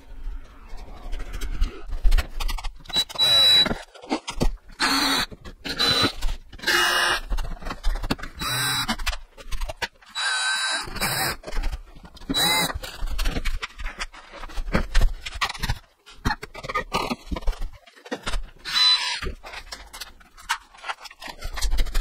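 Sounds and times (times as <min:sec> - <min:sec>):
cordless drill driving screws: 0:02.9 - 0:03.8, 0:04.8 - 0:07.2, 0:08.4 - 0:09.0, 0:10.1 - 0:11.4, 0:12.3 - 0:12.8, 0:18.6 - 0:19.3.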